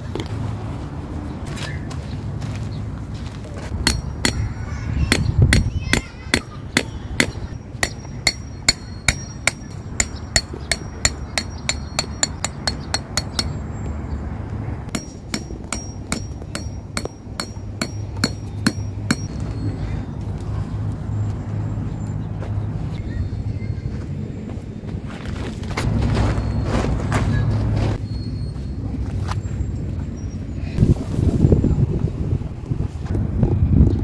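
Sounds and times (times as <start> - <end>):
hammer striking metal stakes: 3.7 - 13.6, 14.9 - 19.4.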